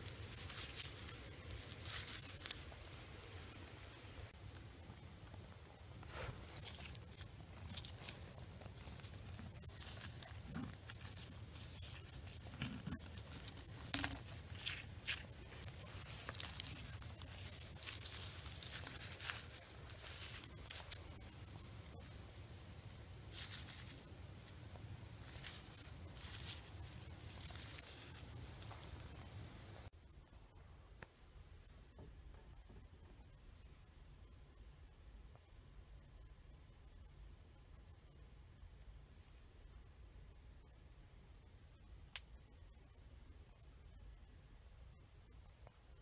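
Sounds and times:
hands scraping through gravelly soil: 6.1 - 22.0.

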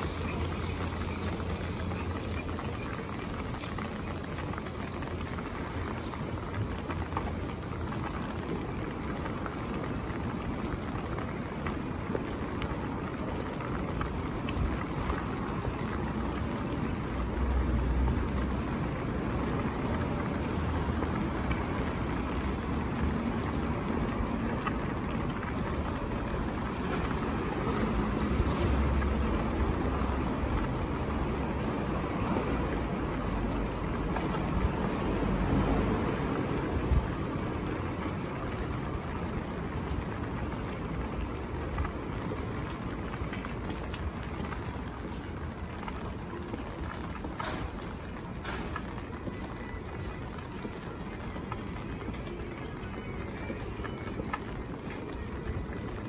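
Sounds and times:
rain pattering on umbrella: 0.0 - 56.0.

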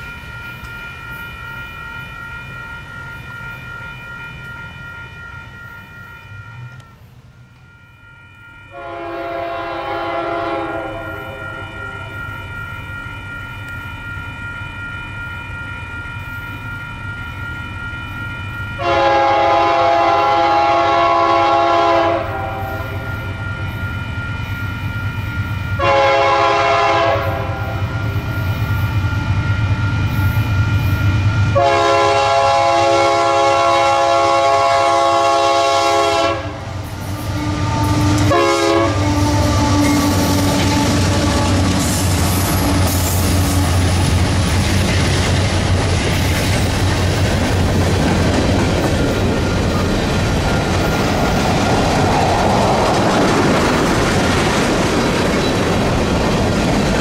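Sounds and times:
train rumble: 0.0 - 57.0
locomotive air horn blasts: 8.7 - 12.2, 18.8 - 23.2, 25.8 - 28.1, 31.5 - 41.8.

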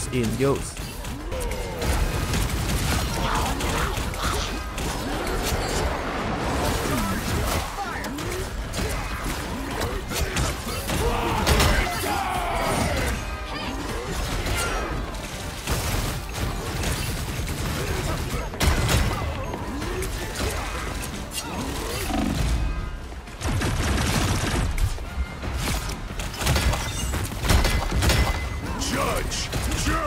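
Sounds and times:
background music: 0.0 - 30.0.

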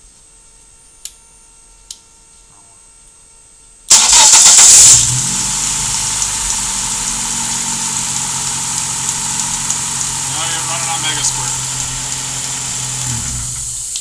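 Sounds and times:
car engine idling: 3.9 - 14.0
starter cranking engine: 3.9 - 14.0.

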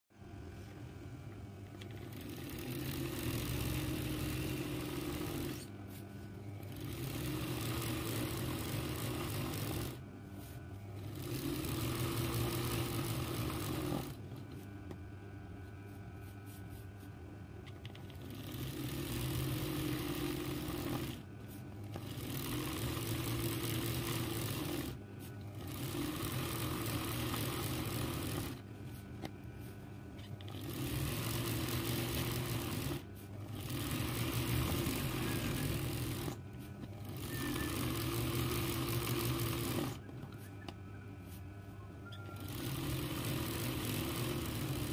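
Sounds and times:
sewing machine stitching: 1.8 - 5.7, 6.6 - 10.0, 11.0 - 14.2, 17.8 - 28.6, 30.3 - 40.1, 42.1 - 44.9.

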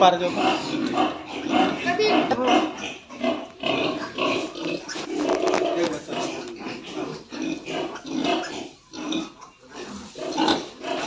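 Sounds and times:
sow and piglets grunting: 0.0 - 11.0.

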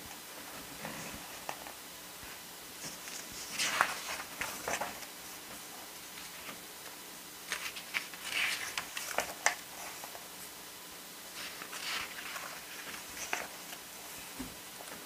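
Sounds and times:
book pages rustling: 2.8 - 10.5, 11.3 - 15.0.

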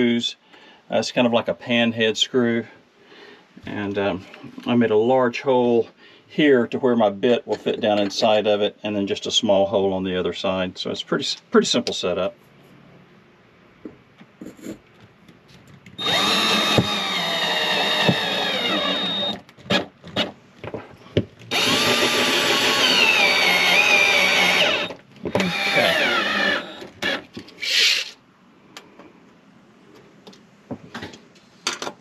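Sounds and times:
cordless drill driving screws: 16.0 - 20.3, 21.5 - 27.3.

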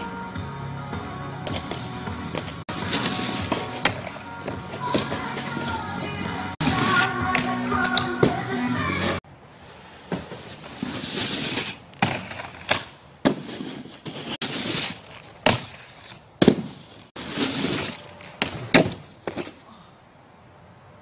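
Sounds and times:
snowboard scraping snow: 2.7 - 3.9, 10.2 - 12.5, 13.3 - 15.2, 16.0 - 18.2.

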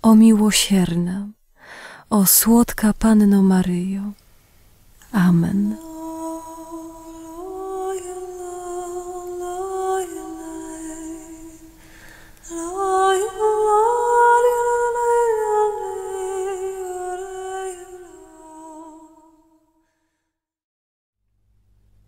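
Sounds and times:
person humming melody: 5.7 - 11.8.

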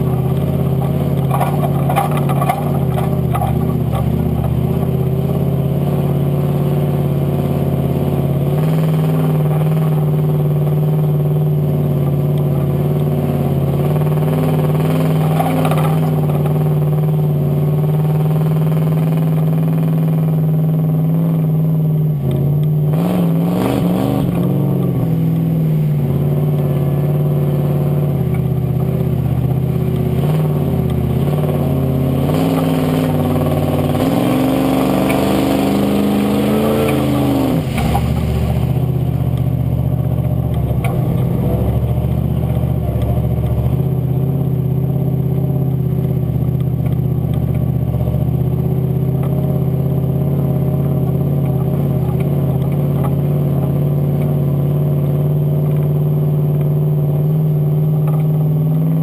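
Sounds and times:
buggy engine revving: 0.0 - 59.0
water and mud rushing: 12.9 - 18.9, 29.4 - 43.9.

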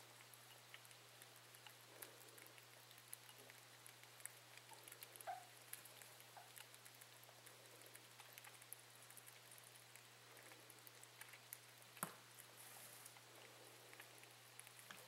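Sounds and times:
rabbits nibbling soft clicks: 0.0 - 15.0
steady low hum: 0.0 - 15.0.

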